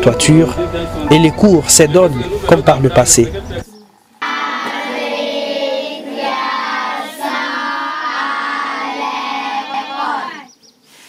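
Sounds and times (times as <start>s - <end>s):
children singing in unison: 3.6s - 10.5s.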